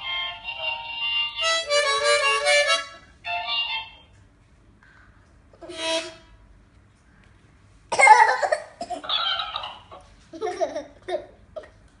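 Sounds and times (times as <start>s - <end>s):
harmonica blast: 0.0s - 3.8s, 5.6s - 6.4s.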